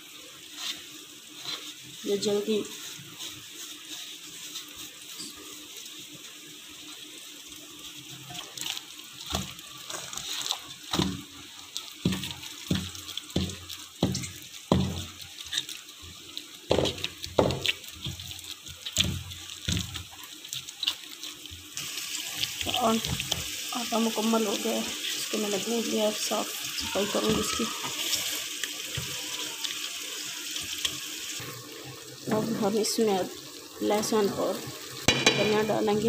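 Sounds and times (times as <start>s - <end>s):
wet dough squelches: 8.0s - 29.7s.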